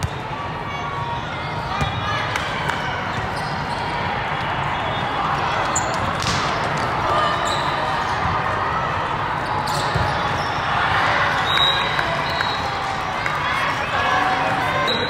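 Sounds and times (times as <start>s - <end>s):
many voices chattering: 0.0s - 15.0s
volleyballs being hit: 6.1s - 6.9s.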